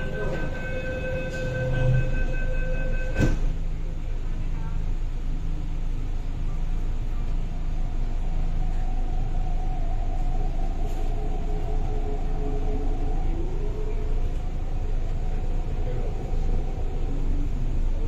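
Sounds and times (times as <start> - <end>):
electronic warning tone: 0.0 - 3.6
train rumble: 0.0 - 18.0
doors closing thud: 3.0 - 3.6.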